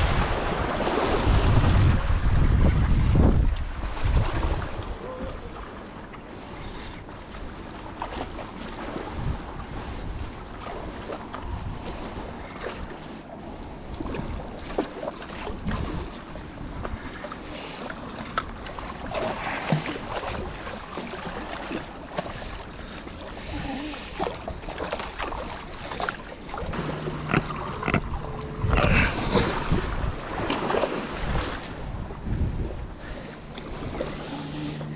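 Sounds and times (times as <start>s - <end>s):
wind buffeting microphone: 0.0s - 5.6s, 9.0s - 13.0s, 25.4s - 34.9s
water lapping against rocks: 0.0s - 34.9s
knocks and clicks: 26.7s - 29.0s.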